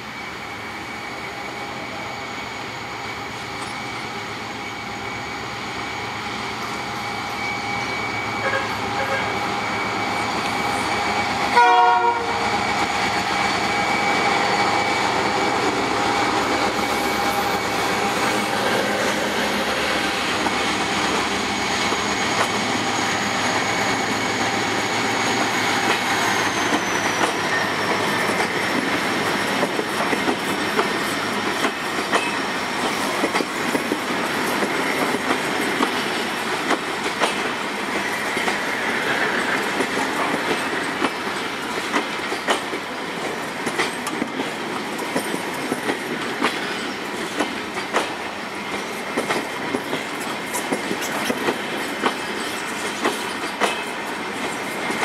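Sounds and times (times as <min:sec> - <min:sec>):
train passing rumble: 0:00.0 - 0:55.0
thin high whine: 0:00.1 - 0:11.6.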